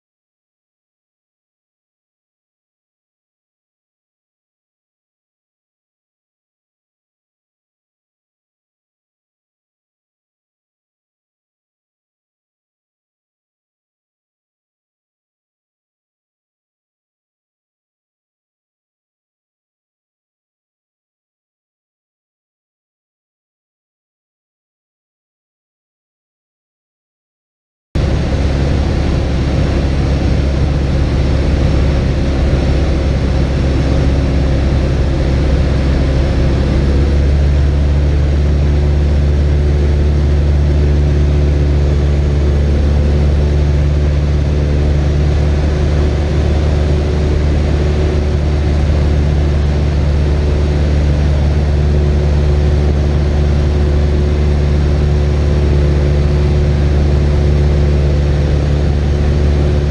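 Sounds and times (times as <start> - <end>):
light aircraft engine in flight: 28.0 - 59.9.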